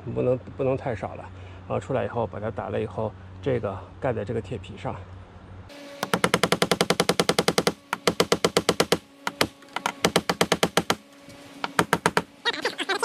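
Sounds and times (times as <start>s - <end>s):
hammer driving nails into roofing: 6.0s - 11.0s, 11.6s - 12.3s.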